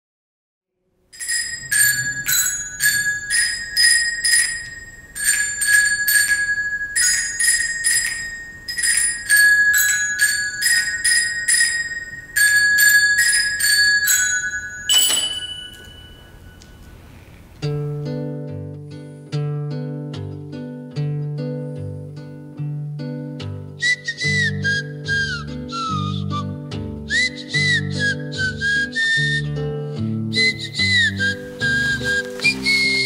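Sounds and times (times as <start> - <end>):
glockenspiel melody: 1.2 - 17.2, 30.4 - 33.0.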